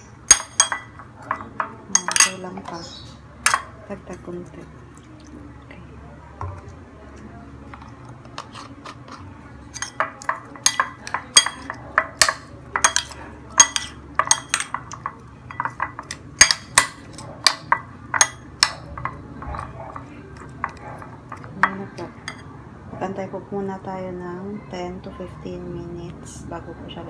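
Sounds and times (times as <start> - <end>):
metal spoon clinking glass bowl: 0.3 - 2.8, 3.4 - 3.8, 9.7 - 22.5.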